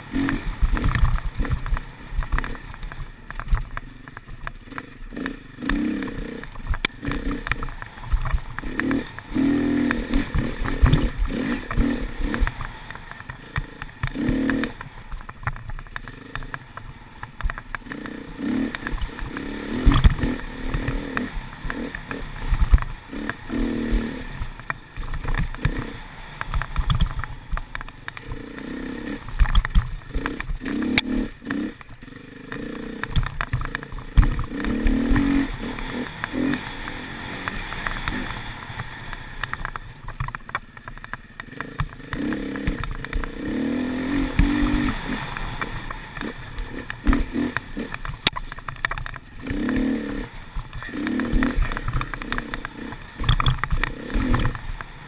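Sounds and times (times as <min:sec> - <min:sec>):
dirt bike engine revving: 0:00.0 - 0:39.8, 0:41.2 - 0:55.0
knocks and clatter from bumps: 0:00.3 - 0:36.6, 0:44.2 - 0:55.0.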